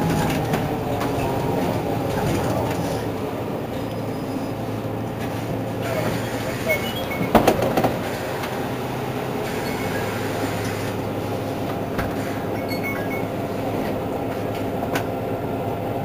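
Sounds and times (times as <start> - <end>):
bus idling: 0.0 - 16.0
clicks and knocks: 7.2 - 8.1.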